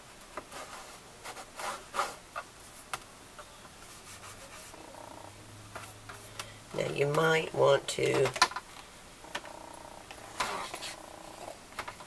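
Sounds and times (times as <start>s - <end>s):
paper rustling and scraping: 0.4s - 2.9s, 10.3s - 11.1s.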